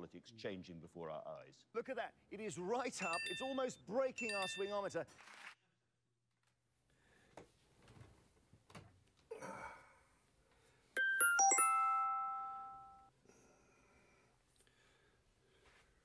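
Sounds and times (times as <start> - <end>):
electronic bell-like chime: 11.0 - 13.1.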